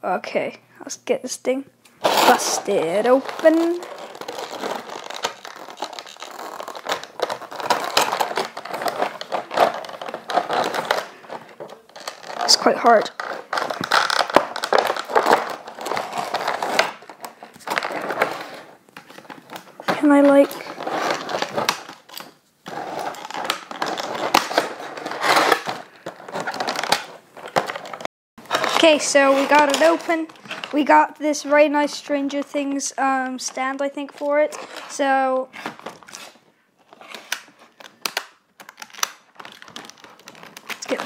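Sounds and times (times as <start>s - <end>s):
plastic crinkling: 1.9s - 41.0s
scissors cutting plastic: 2.0s - 18.3s, 20.0s - 30.8s, 35.6s - 41.0s.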